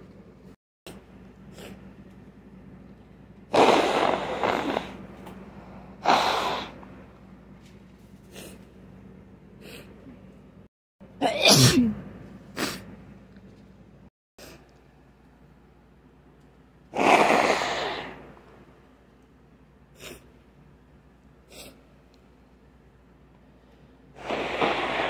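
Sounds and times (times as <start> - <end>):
person sneezing: 11.2 - 12.9, 17.0 - 18.2.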